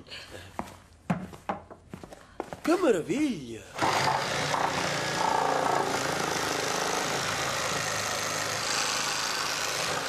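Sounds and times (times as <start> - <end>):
electric knife buzzing: 3.8 - 10.0.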